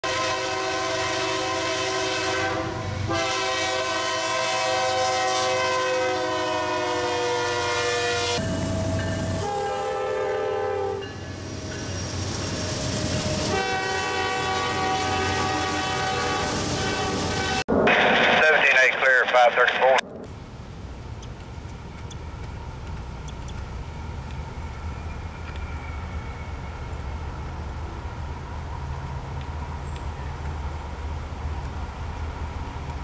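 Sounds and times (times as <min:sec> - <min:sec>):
locomotive air horn chords: 0:00.0 - 0:08.5, 0:09.3 - 0:11.0, 0:13.4 - 0:17.6
train rumbling along rails: 0:00.0 - 0:18.7, 0:19.8 - 0:33.0.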